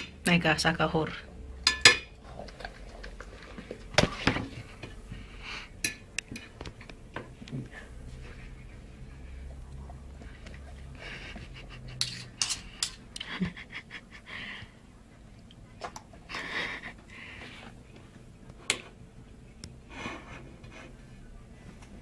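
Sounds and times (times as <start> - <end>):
knife and fork scraping plate: 11.9 - 13.0.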